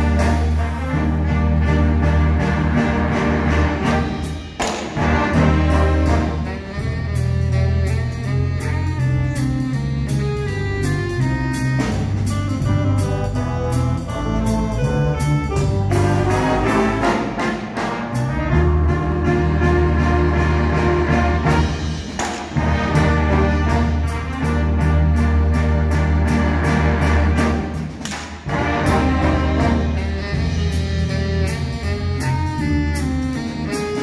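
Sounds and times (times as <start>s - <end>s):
brass ensemble playing jazzy tune: 0.0s - 34.0s
low bass notes: 0.0s - 34.0s
steady beat: 0.0s - 34.0s.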